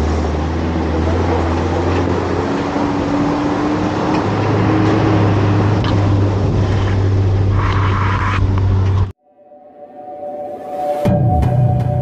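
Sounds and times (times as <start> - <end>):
road noise: 0.0 - 9.2.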